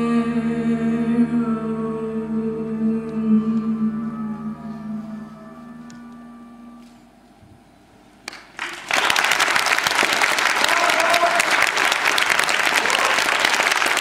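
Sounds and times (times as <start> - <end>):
audience applauding: 8.3 - 14.0.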